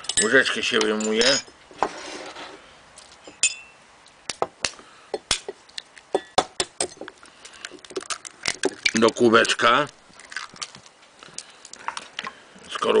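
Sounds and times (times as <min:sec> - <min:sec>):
eggshell cracking over bowl: 0:04.3 - 0:12.9.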